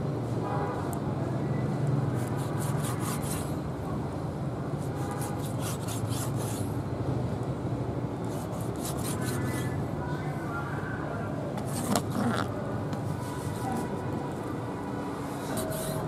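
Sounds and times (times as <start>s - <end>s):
wet rubbing and scraping: 2.2s - 3.6s, 4.9s - 6.7s, 8.2s - 9.8s, 11.6s - 12.5s, 15.3s - 16.0s.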